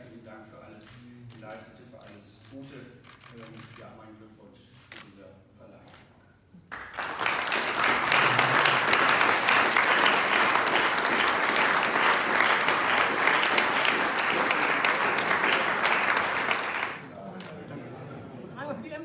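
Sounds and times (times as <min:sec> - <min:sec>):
audience applauding: 0:06.7 - 0:17.1.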